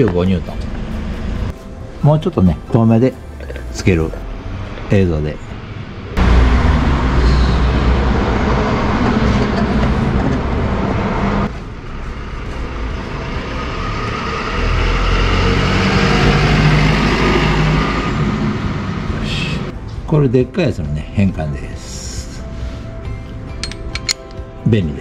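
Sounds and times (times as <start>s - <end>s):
vehicle engine humming: 0.0s - 19.9s.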